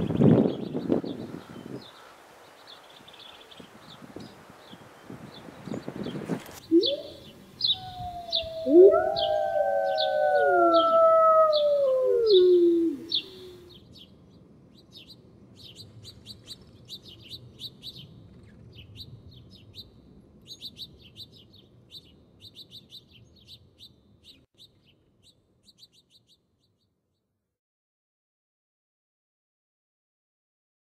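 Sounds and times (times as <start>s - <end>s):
small birds chirping: 0.0s - 27.2s
wolves howling: 6.7s - 13.7s.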